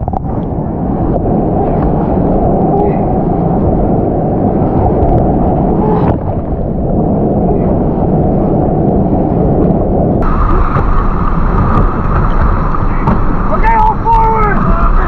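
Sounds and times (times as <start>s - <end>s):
rushing whitewater rapids: 10.2s - 15.0s.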